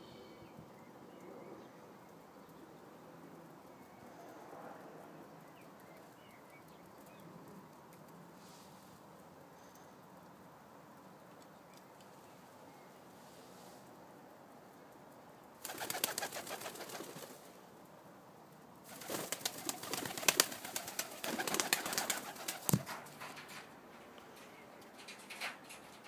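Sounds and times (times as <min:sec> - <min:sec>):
pigeon wings flapping: 0:15.6 - 0:17.5, 0:18.9 - 0:23.7.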